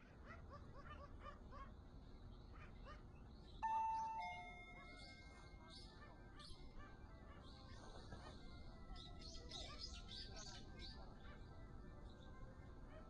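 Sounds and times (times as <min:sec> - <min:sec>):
two-tone door chime: 0:03.6 - 0:05.7.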